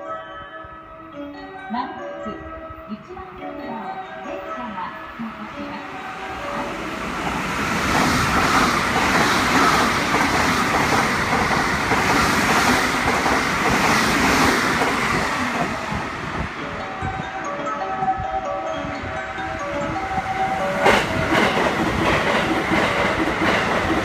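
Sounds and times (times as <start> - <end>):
train passing at speed: 2.4 - 24.0.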